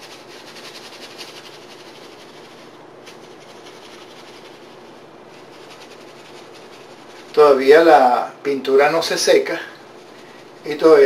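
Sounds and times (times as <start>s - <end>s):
paintbrush scrubbing strokes: 0.0s - 7.6s, 9.8s - 11.0s
faint steady hum: 0.0s - 11.0s.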